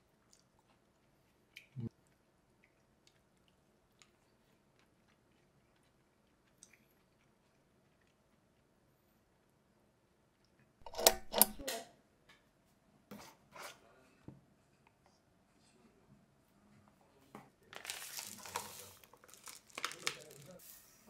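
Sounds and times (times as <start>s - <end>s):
packet tearing open: 17.7s - 20.6s
packaging knocks and clicks: 17.8s - 20.5s.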